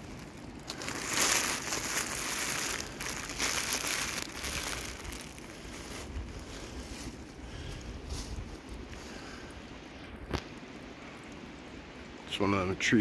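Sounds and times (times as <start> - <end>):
plastic bag rustling: 0.0 - 8.7.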